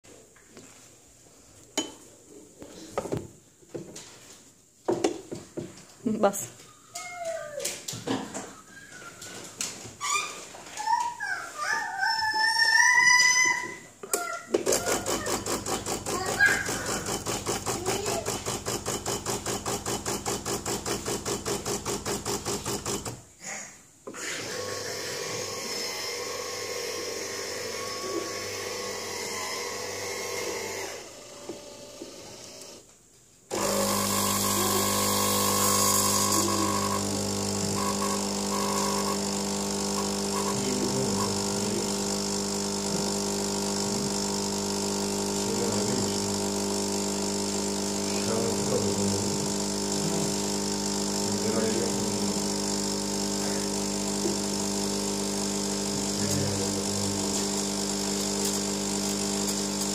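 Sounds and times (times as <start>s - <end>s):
coffee machine hiss: 14.6s - 23.2s, 24.1s - 31.3s, 33.5s - 59.9s
coffee machine pulsing: 14.6s - 23.2s, 24.2s - 32.8s, 33.5s - 59.9s
coffee machine pump hum: 14.6s - 23.2s, 24.2s - 32.8s, 33.5s - 59.9s.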